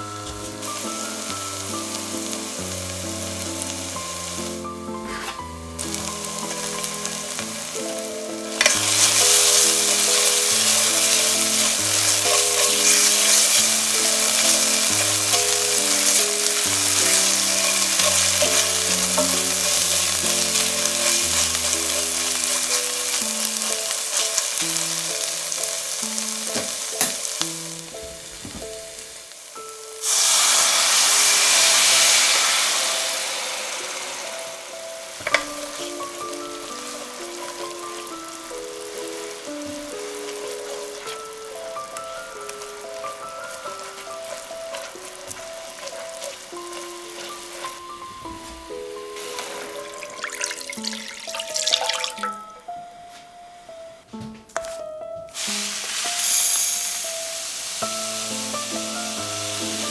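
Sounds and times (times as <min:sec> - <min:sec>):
wine poured into hot pan: 0:00.0 - 0:28.3, 0:30.0 - 0:52.6, 0:55.4 - 0:59.9
food sizzling in oil: 0:00.0 - 0:52.8, 0:55.3 - 0:59.9
spatula stirring in pan: 0:04.9 - 0:27.4, 0:35.2 - 0:51.8.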